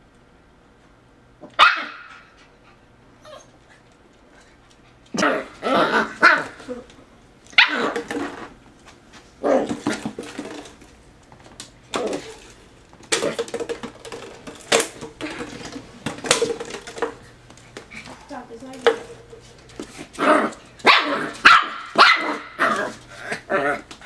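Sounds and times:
puppy play-barking: 0:01.4 - 0:02.4, 0:05.1 - 0:06.8, 0:07.5 - 0:08.0, 0:20.2 - 0:23.8.

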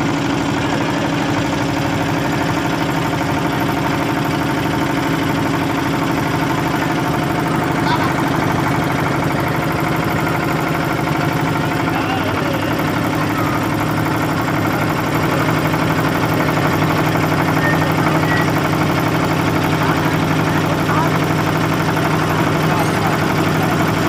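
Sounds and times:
motorboat engine running: 0:00.0 - 0:24.0.

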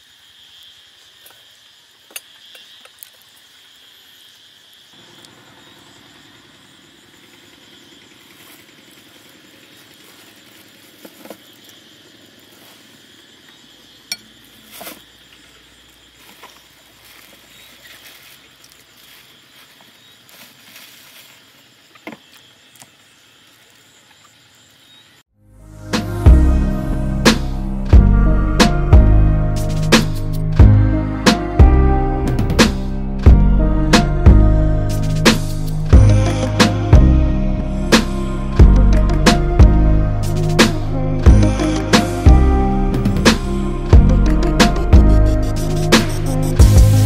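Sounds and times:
crickets and insects chirring: 0:00.0 - 0:47.0
music: 0:25.4 - 0:47.0.

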